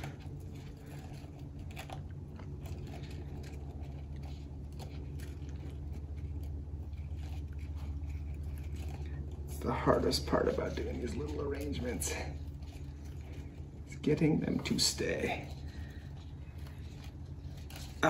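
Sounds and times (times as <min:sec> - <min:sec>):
low room hum: 0:00.0 - 0:18.0
stems crunching into floral foam: 0:00.0 - 0:18.0.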